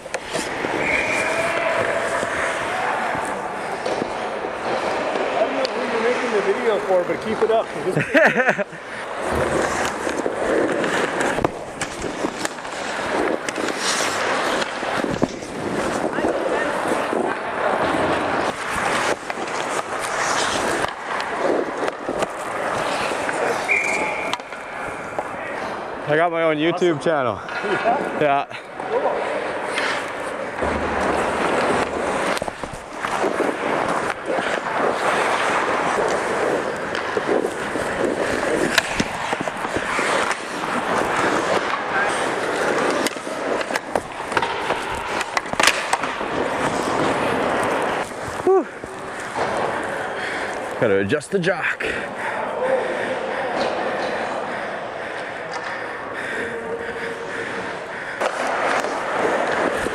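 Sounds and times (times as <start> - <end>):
stick and puck clacks: 0.0 - 25.7, 29.4 - 50.8, 53.5 - 54.4, 55.1 - 59.9
skates scraping ice: 0.0 - 59.9
whistle blast: 0.8 - 1.5, 23.6 - 24.4.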